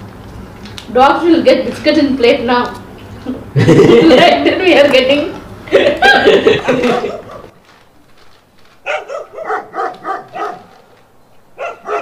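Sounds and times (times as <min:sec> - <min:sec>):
dog yapping: 0:06.9 - 0:07.5, 0:08.8 - 0:10.9, 0:11.6 - 0:12.0.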